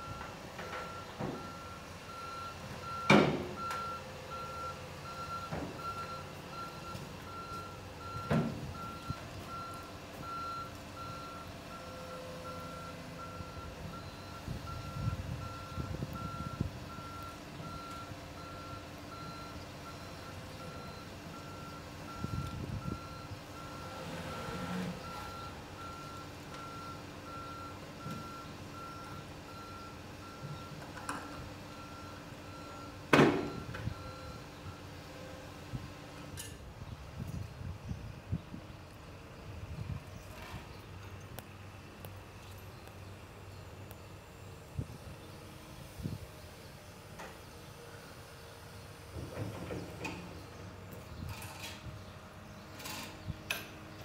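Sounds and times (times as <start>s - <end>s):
reversing alarm beeping: 0.0s - 35.0s.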